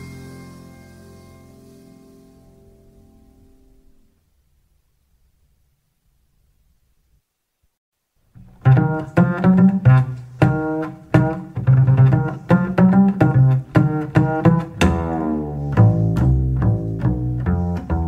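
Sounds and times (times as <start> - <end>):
plucked double bass: 8.4 - 18.0.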